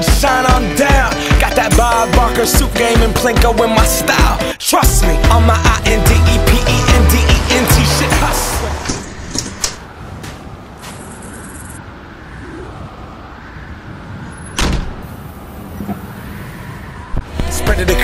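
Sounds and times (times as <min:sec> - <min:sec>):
large truck idling: 0:04.8 - 0:09.1.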